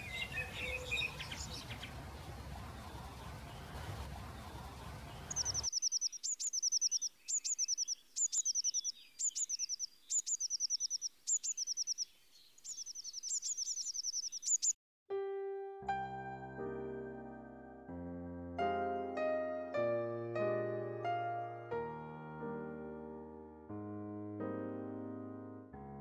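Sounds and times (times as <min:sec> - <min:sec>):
bird singing trills: 0:00.0 - 0:02.0, 0:05.2 - 0:14.8
piano music: 0:15.1 - 0:26.0.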